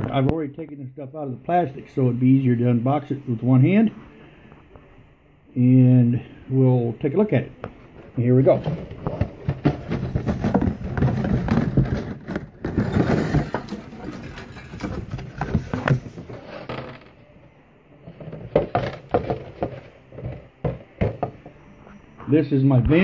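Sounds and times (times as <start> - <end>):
plastic bags rustling: 8.4 - 17.2.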